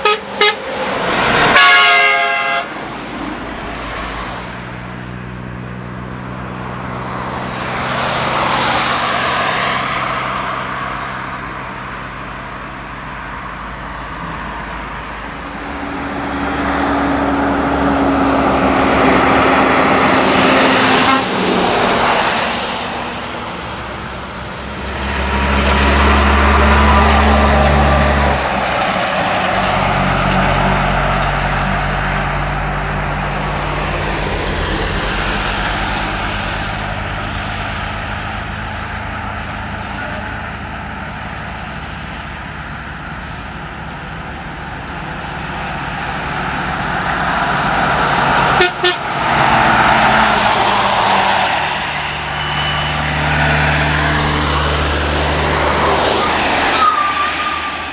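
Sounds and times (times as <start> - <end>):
cars passing: 0.0 - 57.9
diesel trucks passing: 0.0 - 57.9
truck engine tone dropping in pitch: 14.2 - 57.9.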